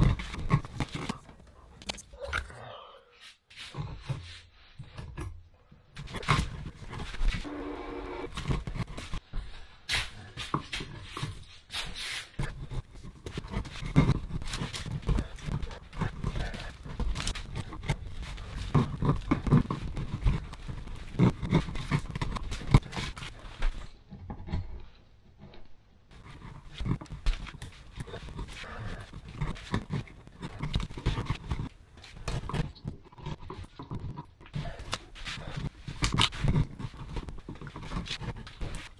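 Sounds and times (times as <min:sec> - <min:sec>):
screwdriver scraping wood: 0:06.0 - 0:09.2, 0:12.3 - 0:23.6, 0:26.1 - 0:38.9.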